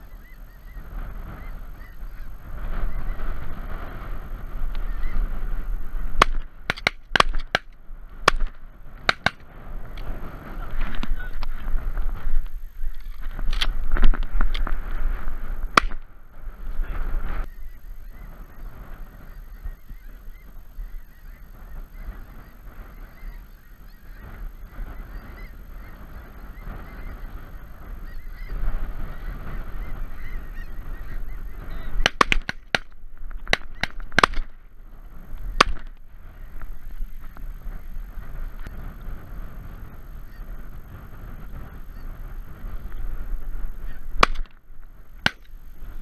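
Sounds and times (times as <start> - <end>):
geese honking and chattering: 0.0 - 13.8, 14.6 - 46.0
sharp bangs: 6.1 - 10.0, 31.9 - 34.6, 44.2 - 44.6.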